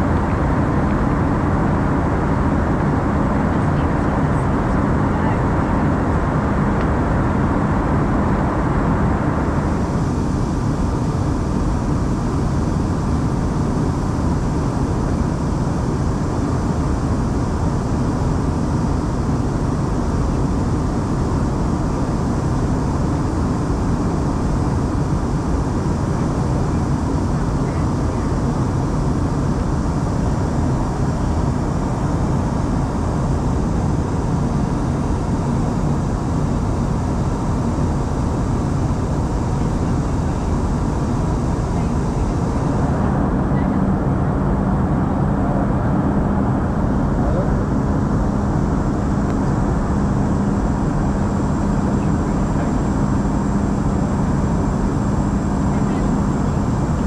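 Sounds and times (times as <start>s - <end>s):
airliner cabin engine noise: 0.0s - 57.0s.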